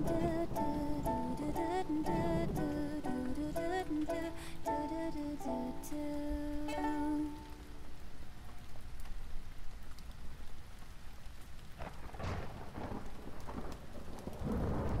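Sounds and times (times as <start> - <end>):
thunder rumbling: 0.0 - 4.2, 11.8 - 15.0
steady rain falling: 0.0 - 15.0.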